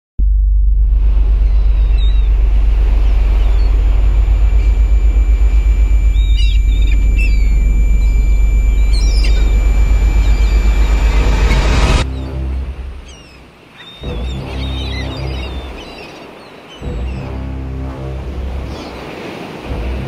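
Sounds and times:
deep pulsing rumble: 0:00.2 - 0:16.0, 0:16.8 - 0:19.0, 0:19.6 - 0:20.0
thin steady high tone: 0:01.2 - 0:12.0
short bird chirps: 0:05.9 - 0:11.2.

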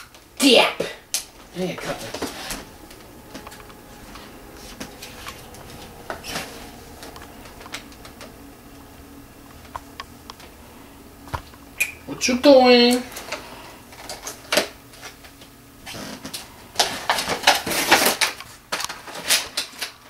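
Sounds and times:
plastic packaging being opened: 0:15.9 - 0:20.0.

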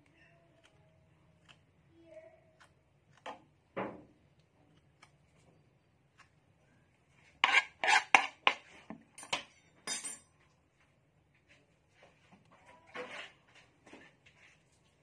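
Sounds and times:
knife and cutting board clattering: 0:07.4 - 0:10.2.

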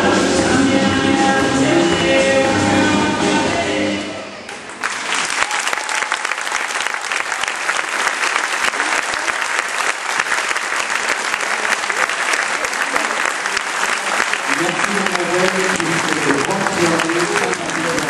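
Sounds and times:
music: 0:00.0 - 0:04.4
audience applauding: 0:04.5 - 0:18.0.

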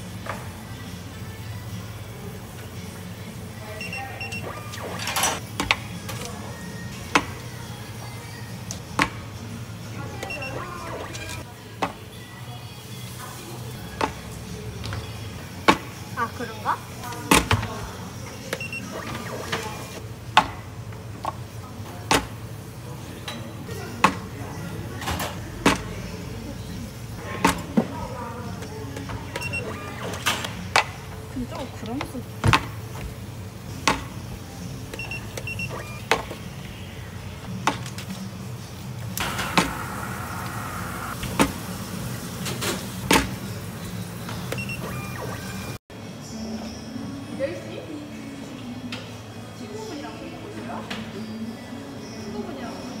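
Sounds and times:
short electronic beeps: 0:44.6 - 0:45.8.

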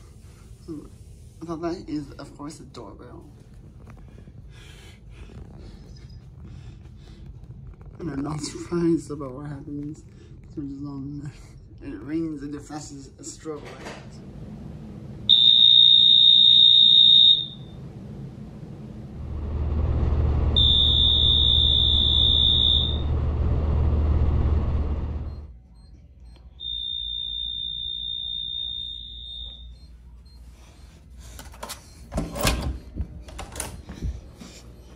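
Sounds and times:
low rumbling noise: 0:13.1 - 0:25.6
high-pitched electronic alarm tone: 0:15.3 - 0:17.8, 0:20.5 - 0:23.2, 0:25.2 - 0:30.4.

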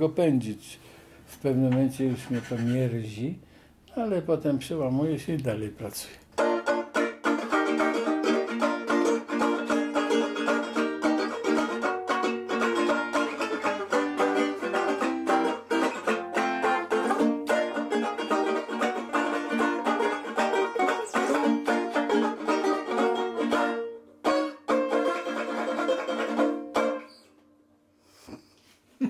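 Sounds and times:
banjo strummed: 0:01.6 - 0:02.9, 0:06.4 - 0:27.3.

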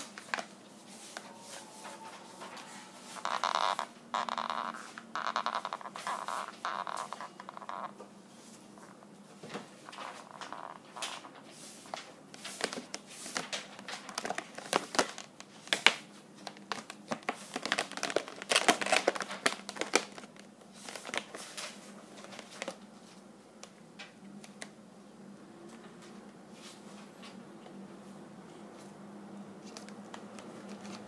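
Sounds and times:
balloons squeaking and rubbing: 0:00.8 - 0:07.9.

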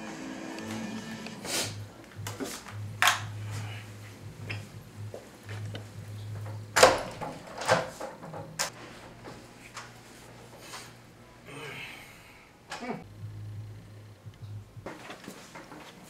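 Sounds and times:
steady low hum: 0:00.0 - 0:07.5, 0:08.2 - 0:14.9.

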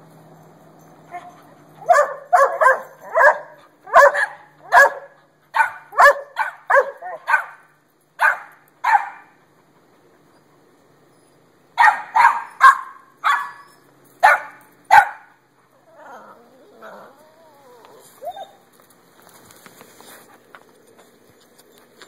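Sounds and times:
dog barking: 0:01.1 - 0:09.4, 0:11.8 - 0:13.6, 0:14.2 - 0:15.4.

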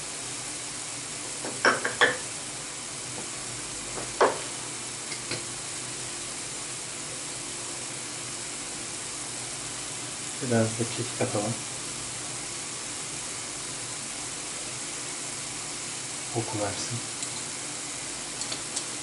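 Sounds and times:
vegetables sizzling in a frying pan: 0:00.0 - 0:19.0
utensil clicking against pan: 0:18.4 - 0:18.9.

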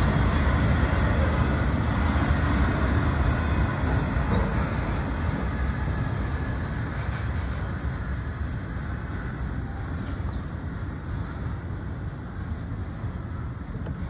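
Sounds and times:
train cars rolling on rails: 0:00.0 - 0:14.0.

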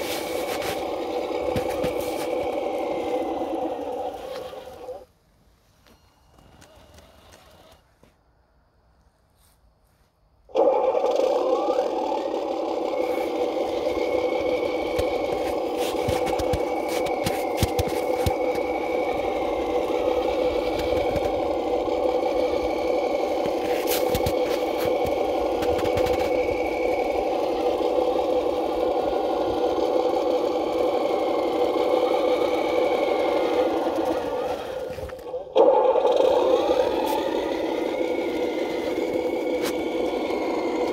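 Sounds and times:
toy truck motor whirring: 0:00.0 - 0:05.1, 0:05.9 - 0:08.0, 0:10.5 - 0:40.9
faint thin whine: 0:04.0 - 0:08.2.

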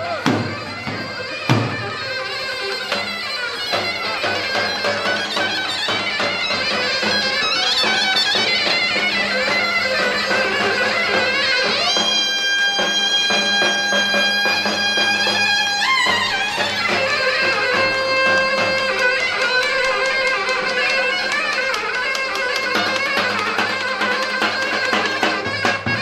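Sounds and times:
reed wind instrument melody: 0:00.0 - 0:26.0
regular drumbeat: 0:00.0 - 0:26.0.

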